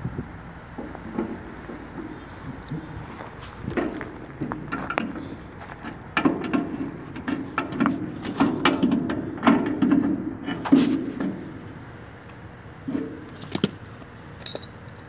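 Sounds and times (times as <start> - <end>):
wrench clinking on metal bolts: 14.4 - 15.0.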